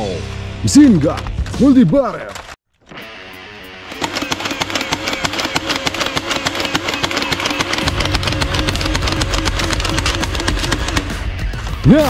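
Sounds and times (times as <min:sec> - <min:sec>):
dart blaster firing clicks: 0:03.9 - 0:11.2
motor whir: 0:03.9 - 0:11.3.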